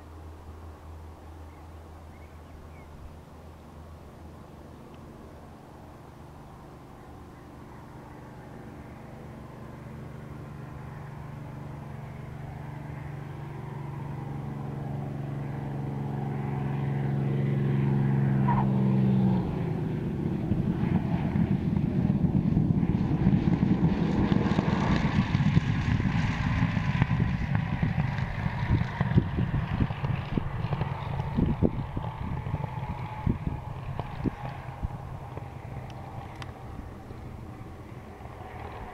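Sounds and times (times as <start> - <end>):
aircraft engine droning: 0.0 - 38.9.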